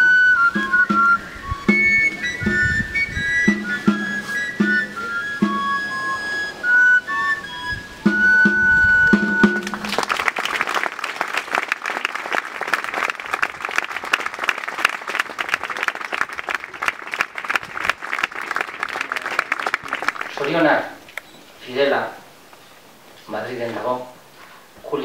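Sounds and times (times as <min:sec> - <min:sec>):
flute playing held notes: 0:00.0 - 0:10.0
drum beats: 0:00.5 - 0:02.8, 0:03.4 - 0:05.9, 0:08.0 - 0:10.0
crowd applauding: 0:09.3 - 0:20.7.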